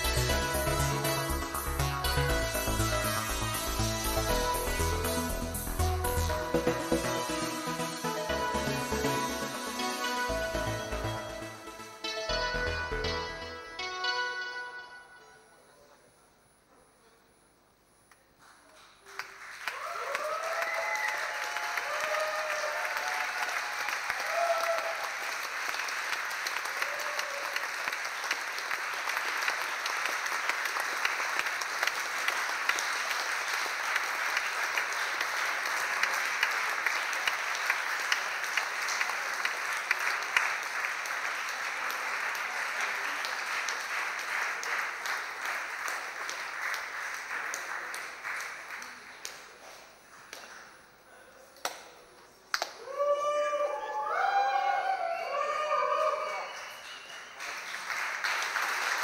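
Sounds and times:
crowd applauding: 0:18.4 - 0:51.8, 0:52.6 - 0:59.0
cheers and whoops: 0:19.6 - 0:25.4, 0:26.6 - 0:27.8, 0:52.7 - 0:57.1.

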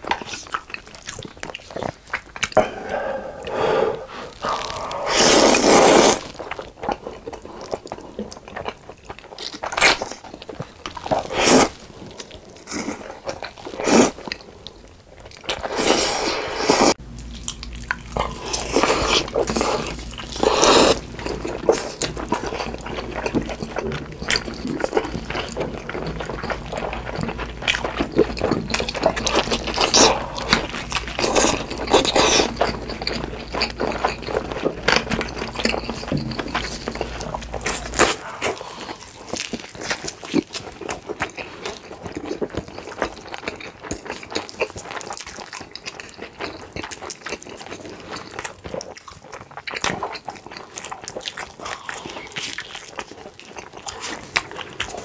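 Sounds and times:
noodles slurped and chewed: 0:00.0 - 0:55.0
steady low hum: 0:02.5 - 0:06.0, 0:16.6 - 0:39.6
chicken bitten and chewed: 0:17.2 - 0:55.0.

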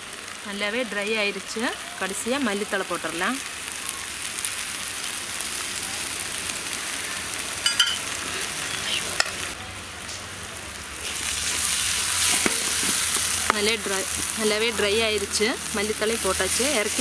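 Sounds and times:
masala sizzling in a pan: 0:00.0 - 0:17.0.

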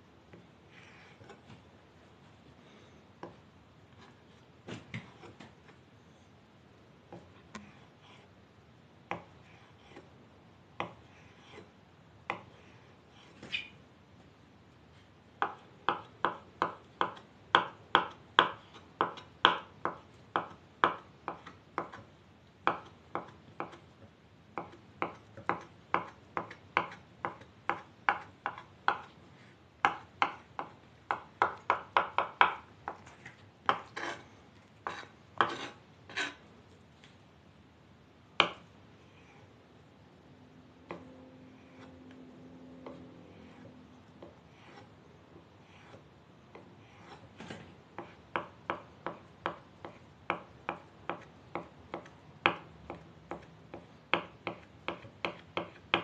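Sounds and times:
knife chopping on wooden board: 0:34.8 - 0:36.4, 0:45.8 - 0:56.0.

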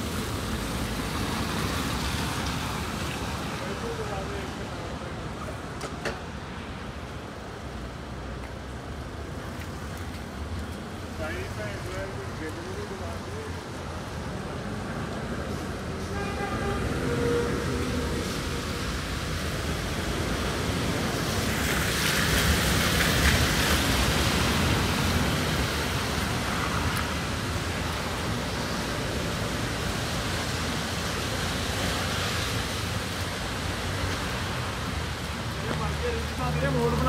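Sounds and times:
car passing on wet road: 0:00.0 - 0:37.0
rain hiss: 0:00.0 - 0:37.0.

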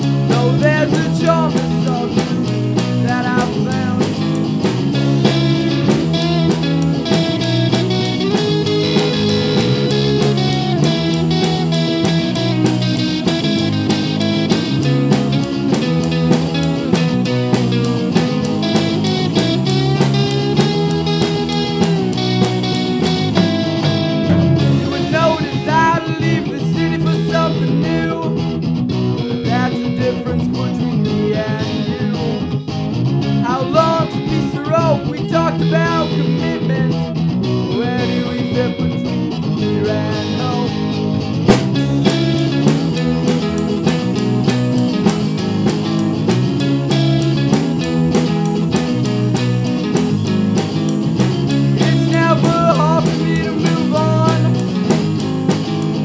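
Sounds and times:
lead guitar bending notes: 0:00.0 - 0:56.0
rock band playing: 0:00.0 - 0:56.0.

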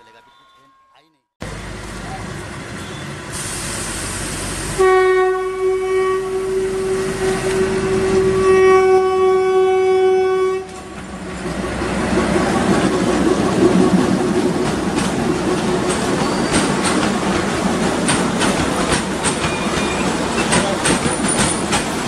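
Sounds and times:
train engine and wheels clattering: 0:01.4 - 0:22.0
locomotive horn blast: 0:04.7 - 0:11.0.

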